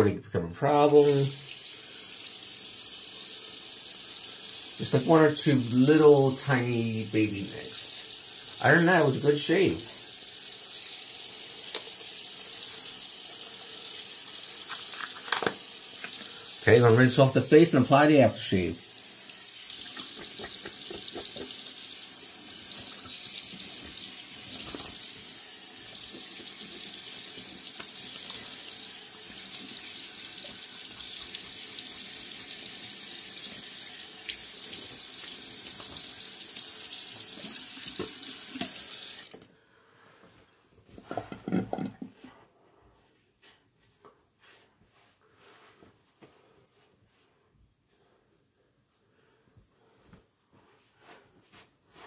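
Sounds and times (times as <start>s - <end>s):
tap water running into sink: 7.9s - 16.7s, 18.9s - 39.4s.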